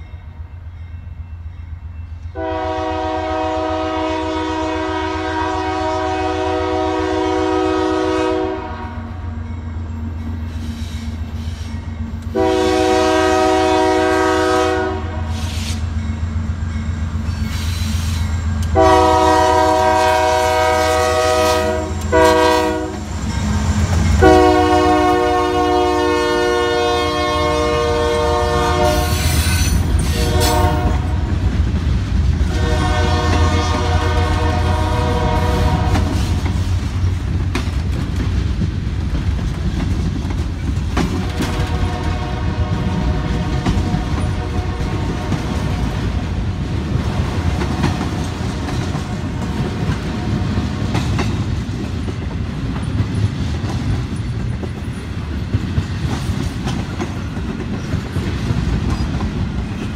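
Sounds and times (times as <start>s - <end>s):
train wheels rumbling on rails: 0.0s - 59.9s
locomotive air horn: 2.4s - 9.3s, 12.3s - 15.8s, 18.7s - 23.1s, 24.2s - 31.2s, 32.5s - 36.4s, 41.2s - 45.9s.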